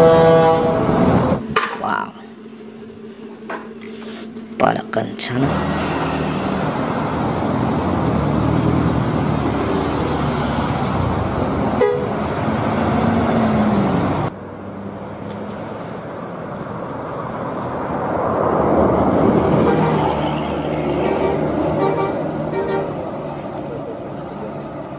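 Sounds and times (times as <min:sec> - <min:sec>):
bus horns tooting: 0:00.0 - 0:01.4, 0:11.7 - 0:12.4, 0:19.4 - 0:23.1
bus engines running: 0:00.0 - 0:24.9.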